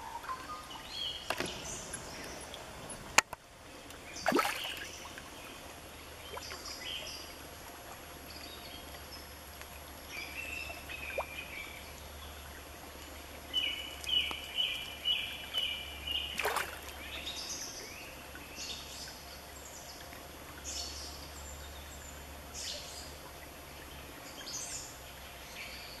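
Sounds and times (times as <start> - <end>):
creek water rushing: 0.0 - 24.1
small birds chirping: 10.0 - 26.0.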